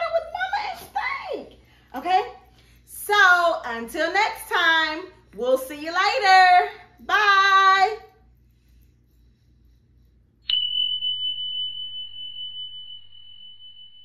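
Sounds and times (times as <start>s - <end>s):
woman's voice: 0.0s - 8.2s
high bell-like ding: 10.5s - 14.0s.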